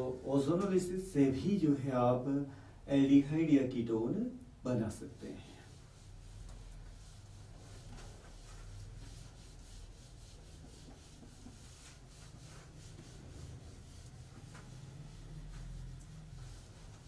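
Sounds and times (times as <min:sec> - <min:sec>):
eraser rubbing on whiteboard: 0:05.1 - 0:17.0.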